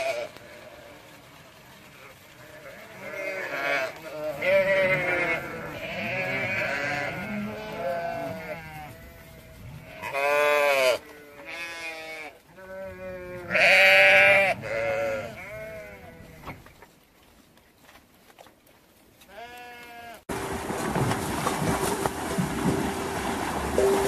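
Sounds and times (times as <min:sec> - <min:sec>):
sheep bleating: 0:02.4 - 0:09.2, 0:09.8 - 0:16.4, 0:19.3 - 0:20.2.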